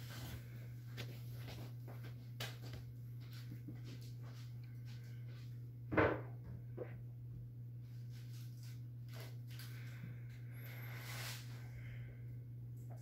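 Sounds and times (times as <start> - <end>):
puppy scuffing on carpet: 0.0 - 5.4
low hum: 0.0 - 13.0.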